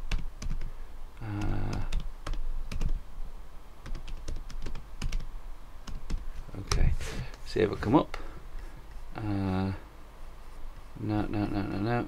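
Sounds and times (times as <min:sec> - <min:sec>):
laptop keyboard typing: 0:00.0 - 0:03.0, 0:03.8 - 0:06.2.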